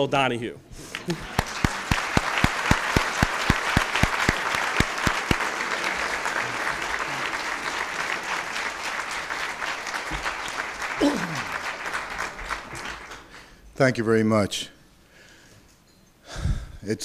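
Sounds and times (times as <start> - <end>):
audience applauding: 0.8 - 13.5
louder individual claps: 0.9 - 13.4.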